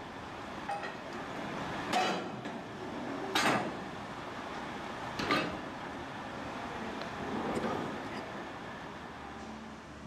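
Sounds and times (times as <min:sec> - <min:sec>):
steady background noise: 0:00.0 - 0:10.0
metal clanks of ferry ramp: 0:01.9 - 0:02.6, 0:03.3 - 0:03.8, 0:05.2 - 0:05.6.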